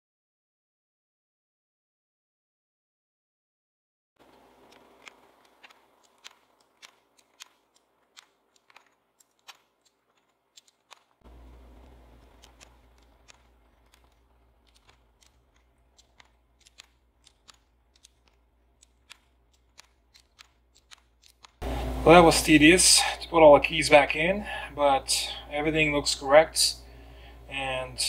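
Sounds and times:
keycaps snapping onto keyboard: 4.3 - 21.6
low hum: 11.2 - 20.1, 20.9 - 28.0.

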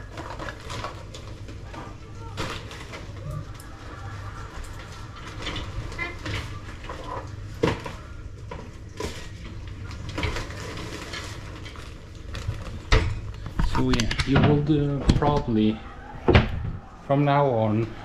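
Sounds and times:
kitchen items knocking and clinking: 4.5 - 16.8.

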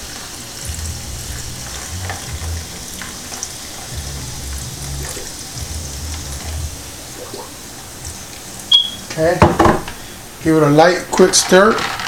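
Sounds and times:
soda fizzing over ice: 0.0 - 9.4.

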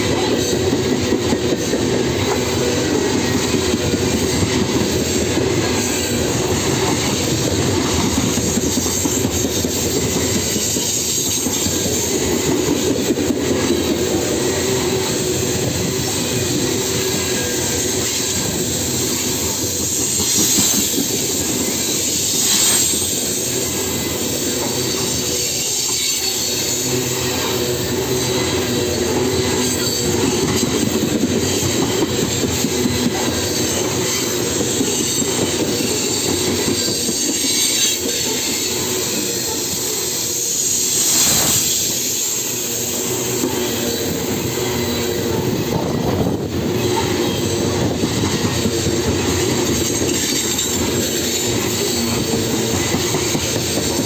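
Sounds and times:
train wheels rumbling on rails: 0.0 - 54.0
high-pitched wheel squeal: 16.0 - 54.0.

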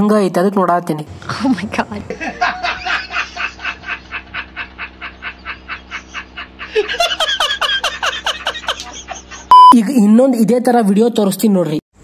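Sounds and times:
man laughing hard: 2.1 - 9.5.

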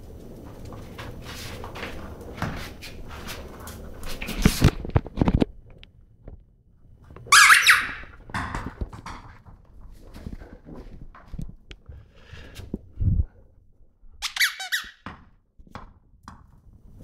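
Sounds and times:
squeaky ball squeaking: 7.3 - 8.1, 14.2 - 15.1.

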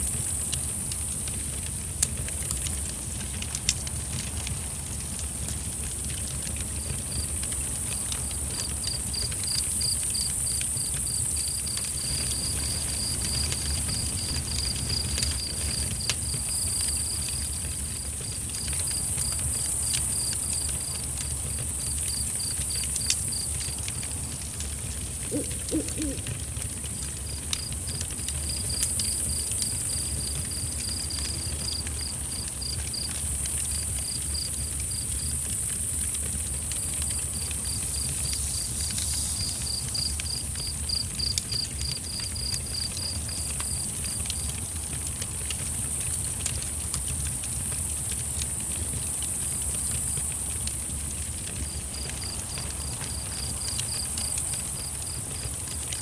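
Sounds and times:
high insect drone: 6.8 - 44.5
cricket chirping: 7.9 - 24.0, 25.2 - 44.4, 51.5 - 56.0
owl hooting: 25.2 - 26.4.

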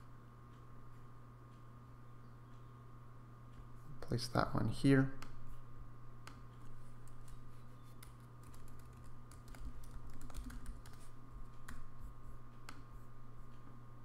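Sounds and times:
steady low hum: 0.0 - 14.0
computer keyboard key clicks: 8.0 - 11.0.

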